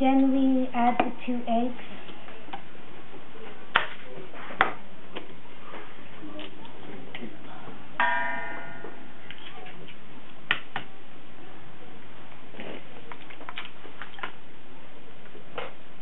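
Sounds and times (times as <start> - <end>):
metal bowl ringing: 8.0 - 9.4.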